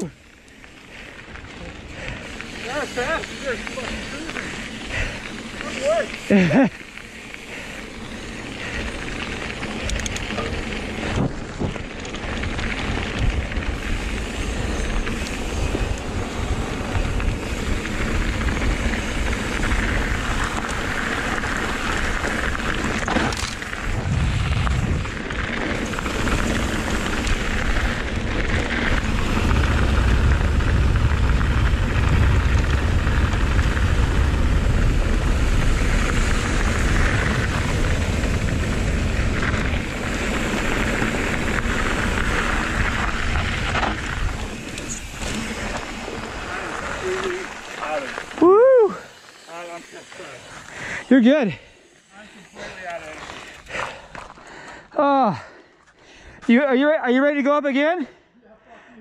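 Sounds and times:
bike tyres rolling on dirt: 0.0 - 58.2
wind buffeting microphone: 21.7 - 47.2.

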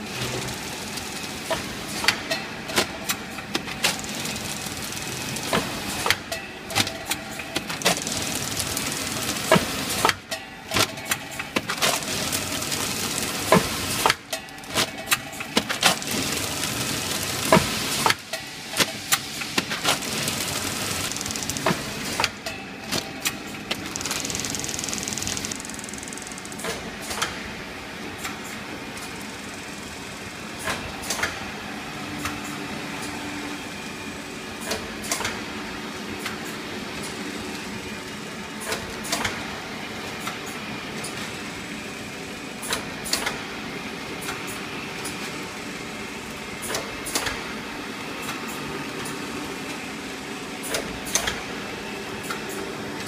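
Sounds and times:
packaging machine humming: 0.0 - 53.0
machine clacks: 0.2 - 27.5, 38.5 - 39.5, 42.6 - 43.5, 46.6 - 47.6, 50.6 - 51.5.

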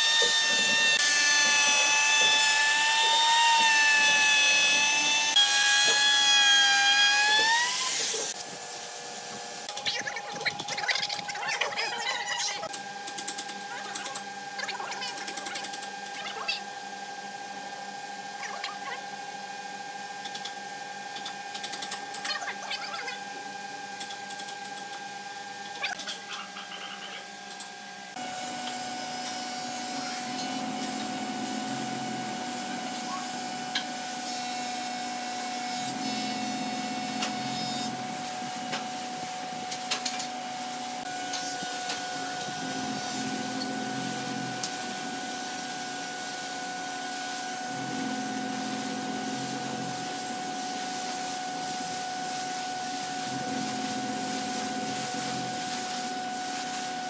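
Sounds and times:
steady hum: 27.8 - 57.0.

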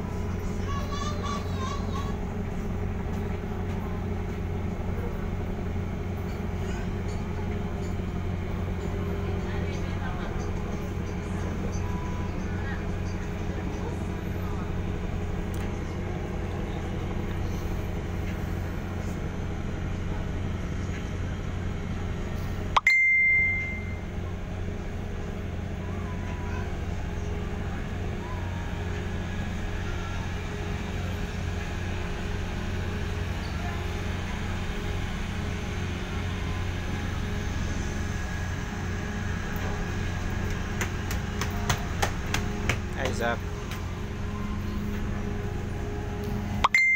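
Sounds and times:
ship engines droning: 0.0 - 46.9
high-pitched beep: 22.8 - 24.0, 46.6 - 46.9.

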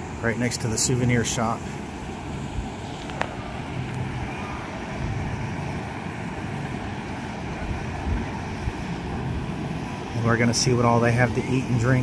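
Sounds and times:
constant outdoor rush: 0.0 - 12.0
faint steady hum: 0.0 - 12.0.

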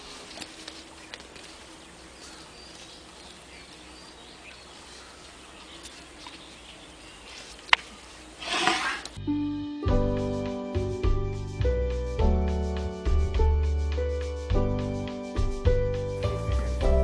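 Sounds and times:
steady background hiss: 0.0 - 9.6.

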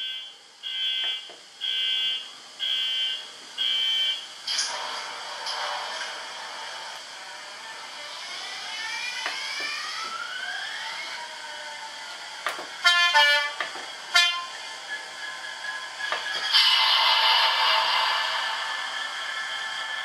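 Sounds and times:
model locomotive rising whines: 0.0 - 20.0
two-tone horn blasts: 12.8 - 14.6.

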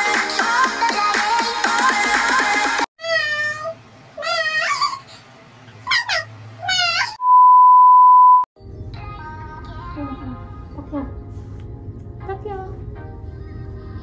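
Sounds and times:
background music: 0.0 - 2.9, 8.6 - 14.0.

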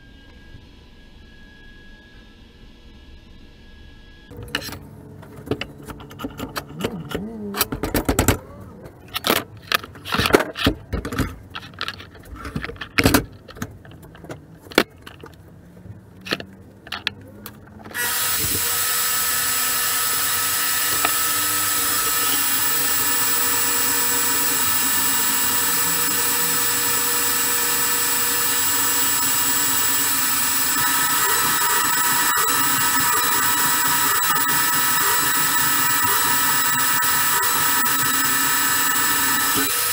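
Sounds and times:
metal parts clanking: 4.4 - 15.4
band saw cutting steel: 17.9 - 39.9
band saw whining: 17.9 - 39.9.

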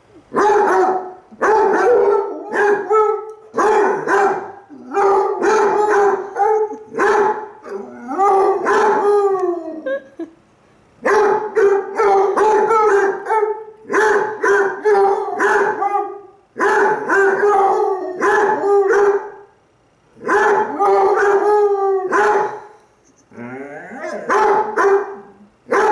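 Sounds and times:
hounds baying: 0.4 - 9.4.

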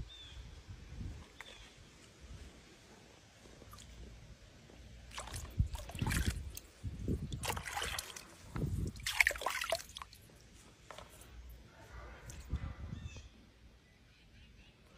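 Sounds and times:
water splashing in a pool: 5.0 - 11.0.

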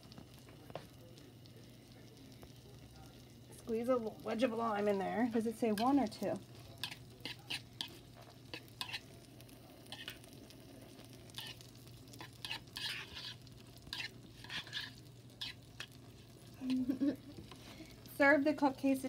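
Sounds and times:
food sizzling on a griddle: 0.0 - 19.0
spoon scraping in a bowl: 6.7 - 9.1, 9.9 - 10.3, 11.3 - 16.0.

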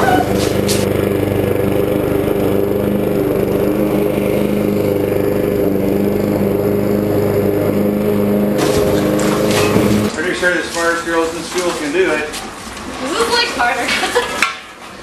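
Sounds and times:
lawn mower engine running: 0.0 - 11.1.

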